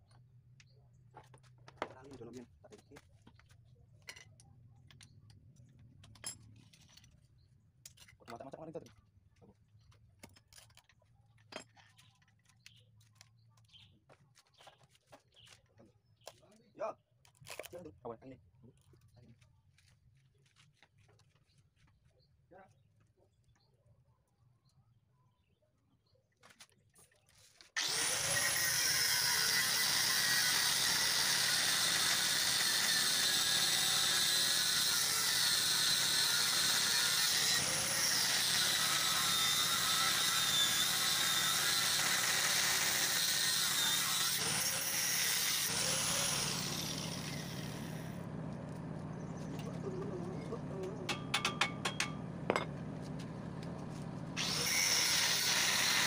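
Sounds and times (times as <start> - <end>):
angle grinder cutting steel: 27.8 - 56.0.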